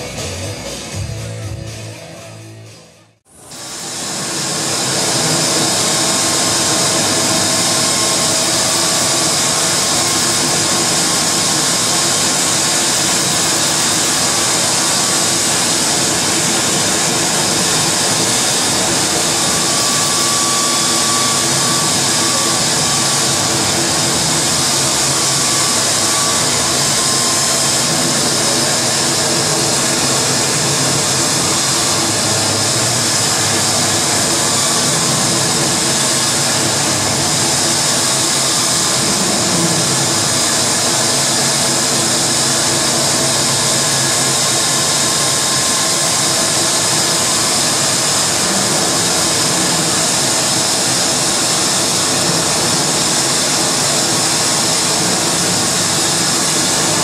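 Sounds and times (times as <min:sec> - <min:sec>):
distorted electronic noise: 0:03.4 - 0:40.5.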